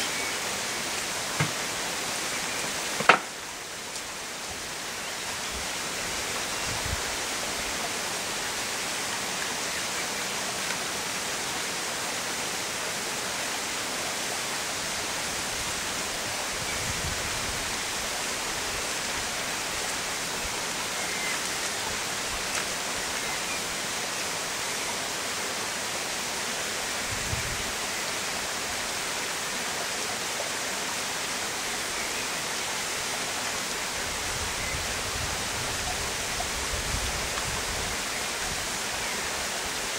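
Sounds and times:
steady hiss: 0.0s - 39.9s.

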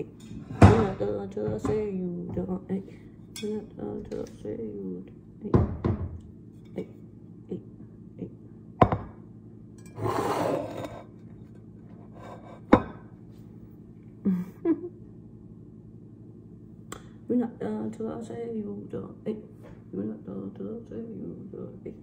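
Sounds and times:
cookware knocks and thunks: 8.8s - 9.2s.

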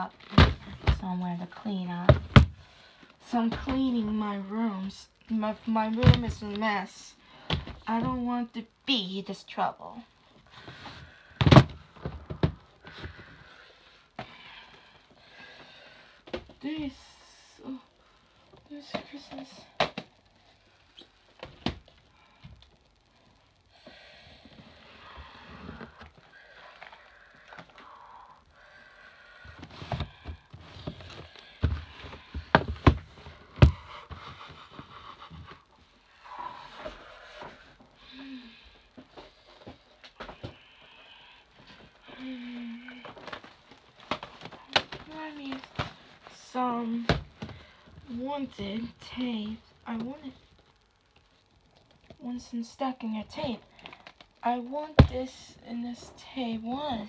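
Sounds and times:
plastic cassettes knocking: 11.4s - 13.2s, 29.6s - 33.8s.

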